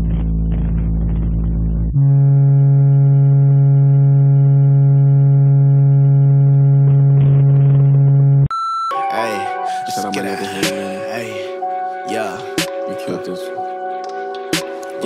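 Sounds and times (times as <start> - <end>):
low test tone: 0.0 - 8.5.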